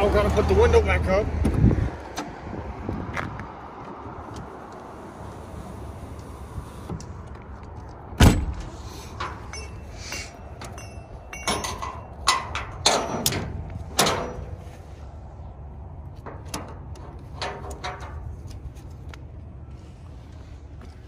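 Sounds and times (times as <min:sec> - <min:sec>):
ratchet strap hooks clacking on metal: 0:09.2 - 0:14.5.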